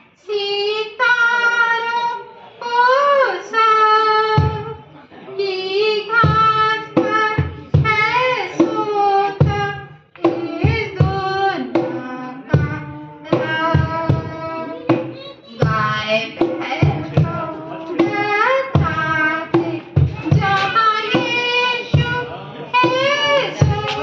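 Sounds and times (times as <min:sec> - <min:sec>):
woman singing with vibrato: 0:00.2 - 0:04.7, 0:05.4 - 0:24.0.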